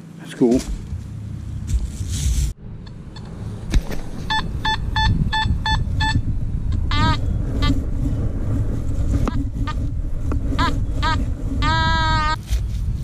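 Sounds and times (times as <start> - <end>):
wind rumble: 0.0 - 13.0
microphone handling noise: 3.6 - 13.0
metal detector beeps: 4.2 - 6.2
metal detector wavering tone: 4.2 - 7.8.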